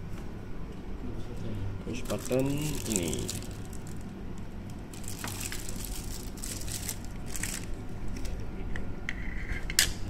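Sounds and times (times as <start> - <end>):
plastic bag crinkling: 1.9 - 7.8.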